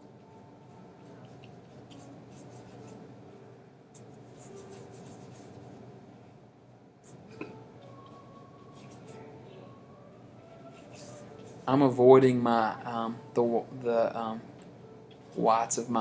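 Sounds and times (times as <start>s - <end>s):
paintbrush strokes on paper: 0.1s - 3.1s, 4.0s - 5.9s, 7.9s - 12.0s.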